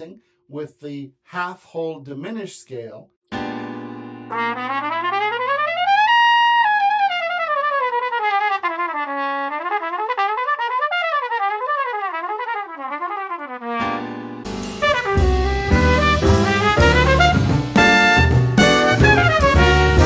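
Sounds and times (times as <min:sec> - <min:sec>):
solo trumpet: 0:04.3 - 0:20.0.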